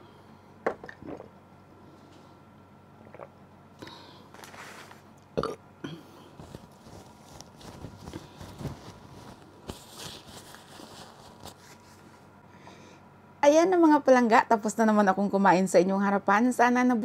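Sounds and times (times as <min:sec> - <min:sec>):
paper tissue rustling: 0:04.3 - 0:05.1, 0:06.4 - 0:12.3
woman burping: 0:05.4 - 0:06.2.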